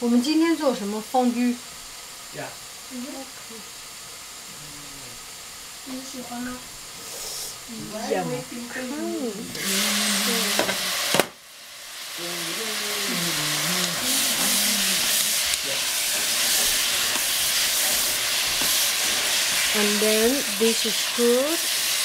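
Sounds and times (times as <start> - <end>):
cabbage sizzling in a pot: 0.0 - 22.0
wooden spatula stirring: 13.9 - 20.8.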